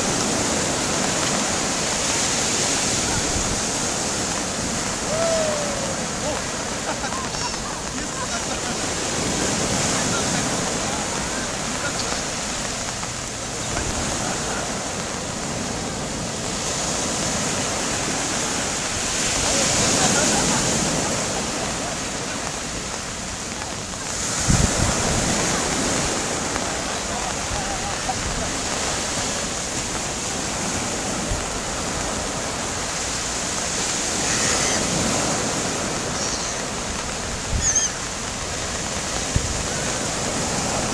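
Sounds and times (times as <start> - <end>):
surf breaking on beach: 0.0 - 40.9
gull calls: 7.1 - 7.8, 34.2 - 35.0, 36.1 - 36.7, 37.5 - 38.0.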